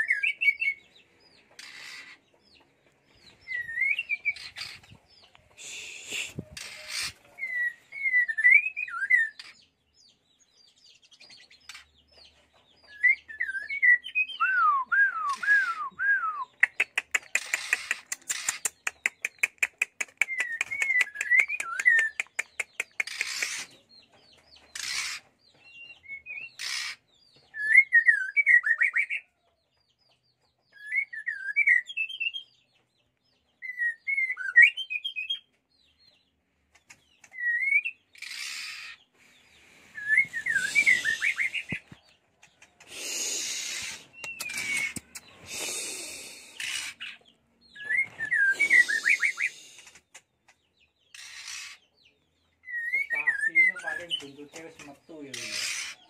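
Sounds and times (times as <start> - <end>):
bird singing warbled phrases: 0.0 - 56.0
short harsh rasps: 5.6 - 7.2, 39.7 - 41.8, 42.8 - 47.0, 48.4 - 50.0
falling whistles: 40.0 - 41.8, 47.8 - 49.6.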